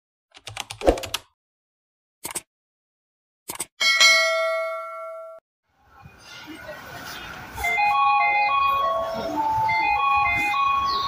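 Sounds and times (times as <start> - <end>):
short clicks: 2.2 - 2.5
bell ding: 3.8 - 5.4.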